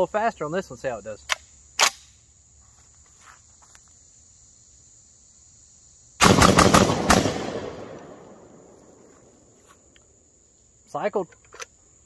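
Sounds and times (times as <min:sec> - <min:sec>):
shotgun fired rapidly: 0:06.2 - 0:07.9
shotgun action cycling: 0:06.2 - 0:08.3
gunshot echoes: 0:06.2 - 0:08.8.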